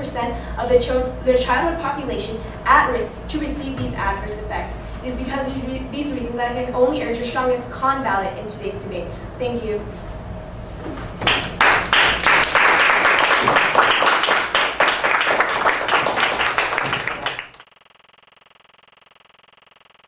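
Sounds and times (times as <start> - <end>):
faint steady hum: 0.0 - 20.0
small group clapping: 11.2 - 17.6.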